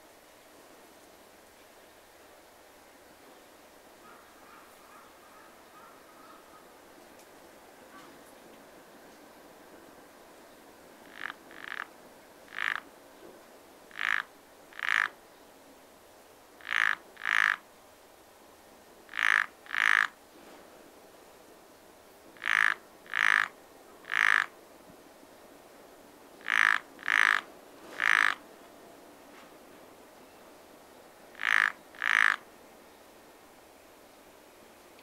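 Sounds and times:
frog croaking: 11.0s - 11.9s, 12.5s - 12.9s, 13.9s - 15.2s, 16.6s - 17.6s, 19.1s - 20.2s, 22.4s - 24.5s, 26.4s - 28.4s, 31.3s - 32.5s.

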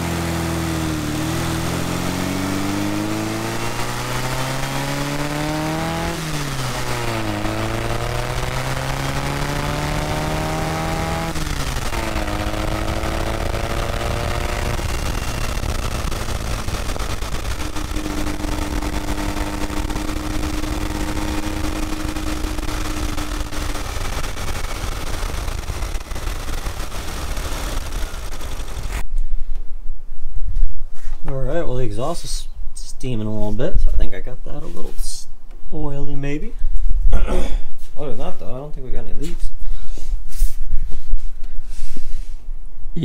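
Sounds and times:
car engine revving: 0.0s - 29.0s
wind and road rush: 0.0s - 29.1s.

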